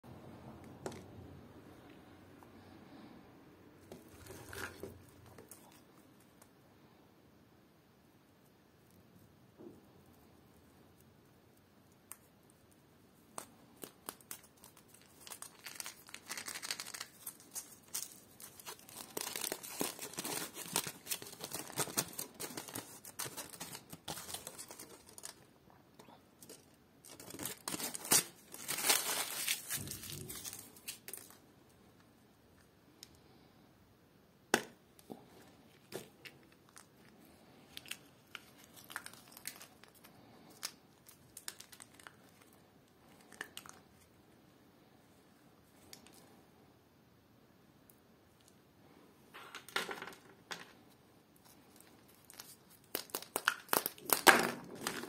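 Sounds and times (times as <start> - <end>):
foil wrapper crinkling and tearing: 13.4 - 25.5, 26.4 - 31.4, 37.7 - 43.8, 51.8 - 55.0.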